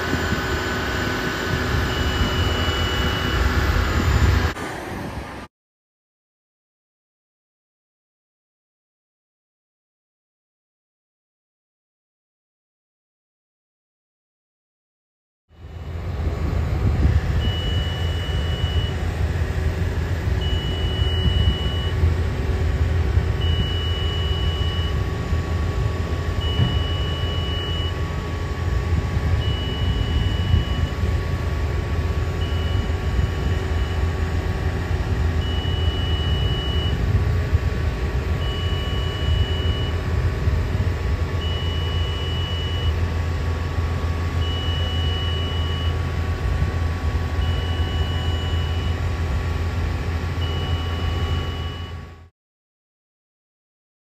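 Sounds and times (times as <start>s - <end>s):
high-pitched warning alarm beeps: 0.0s - 4.6s, 17.3s - 19.2s, 20.4s - 22.1s, 23.2s - 31.4s, 32.1s - 37.2s, 38.3s - 40.1s, 41.4s - 43.1s, 44.3s - 46.1s, 47.2s - 49.2s, 50.4s - 52.2s
construction machinery engine rumble: 0.0s - 5.4s, 15.6s - 52.2s.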